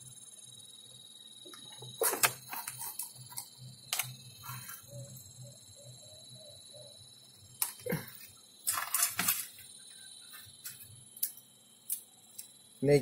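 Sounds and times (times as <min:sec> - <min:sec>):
steady high whine: 0:00.0 - 0:13.0
sharp clicks of tape handling: 0:01.5 - 0:04.2.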